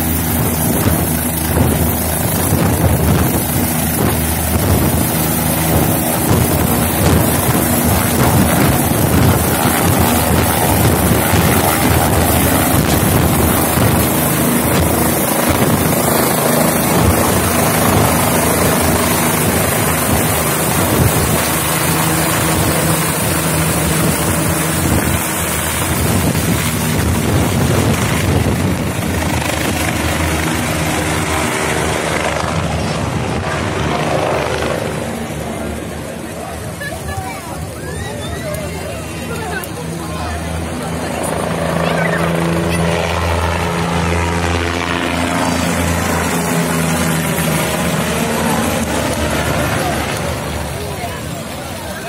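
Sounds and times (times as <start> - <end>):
helicopter taking off: 0.0 - 52.0.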